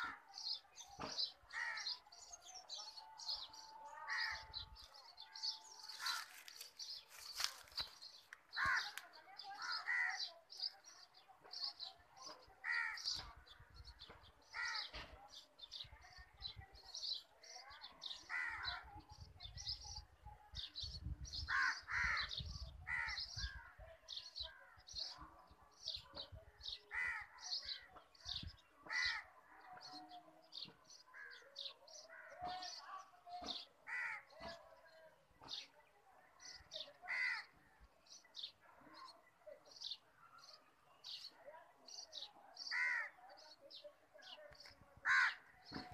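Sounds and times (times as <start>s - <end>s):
birds chirping: 0.0s - 20.0s, 36.4s - 45.9s
harsh caw-like bird calls: 1.5s - 2.0s, 8.6s - 9.0s, 21.5s - 23.6s.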